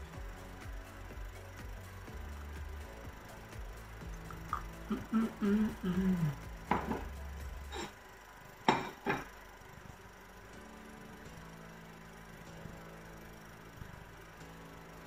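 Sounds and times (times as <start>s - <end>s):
person humming: 4.2s - 7.1s
kitchenware knocking and clinking: 8.7s - 9.3s.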